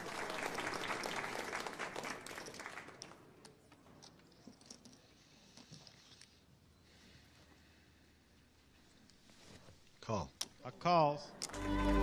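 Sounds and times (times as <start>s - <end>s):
applause: 0.0s - 3.2s
scattered claps: 0.0s - 3.2s.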